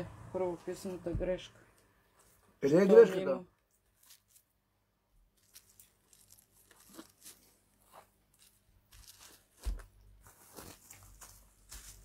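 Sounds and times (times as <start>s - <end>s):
dull thump: 1.1s - 1.4s.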